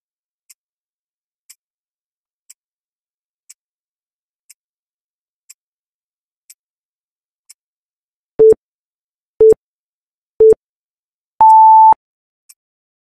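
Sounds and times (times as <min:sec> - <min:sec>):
longer higher beep: 0:11.4 - 0:12.0
short beeps: 0:11.4 - 0:12.0.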